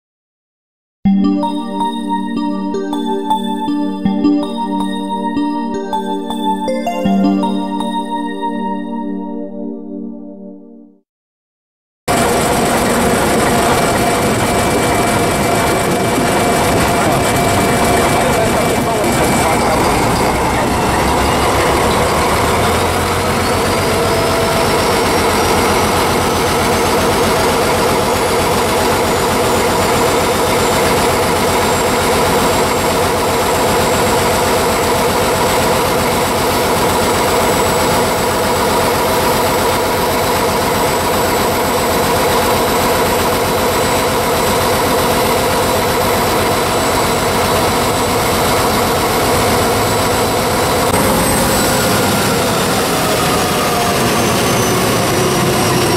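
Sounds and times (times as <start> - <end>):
diesel locomotive engine running: 12.1 - 55.9
high whine: 12.1 - 55.9.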